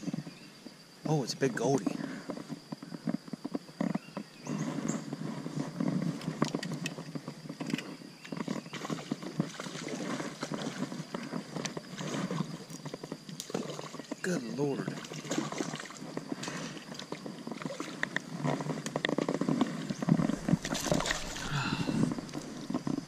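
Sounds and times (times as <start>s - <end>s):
fish splashing: 8.7s - 11.0s, 15.0s - 18.0s, 19.7s - 23.0s.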